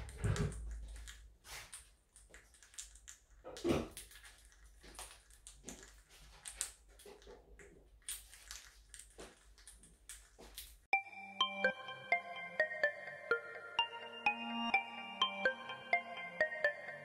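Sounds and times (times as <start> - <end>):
parrots crunching cereal: 0.0 - 10.9.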